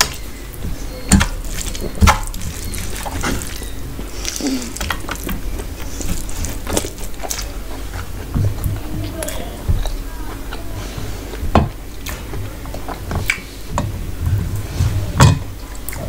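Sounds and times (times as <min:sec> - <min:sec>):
wet chewing and mouth smacks: 0:01.0 - 0:11.4, 0:12.0 - 0:13.5
low thumps: 0:08.0 - 0:15.6.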